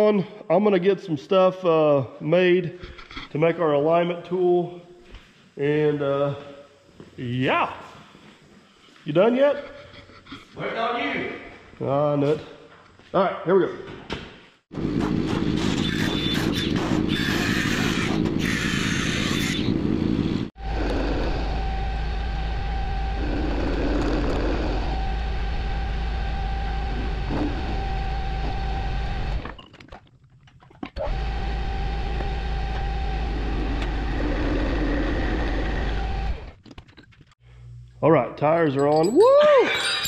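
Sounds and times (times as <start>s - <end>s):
harsh machine noise: 14.8s - 29.5s, 31.0s - 36.6s
metal lathe hum and whine: 20.6s - 29.4s.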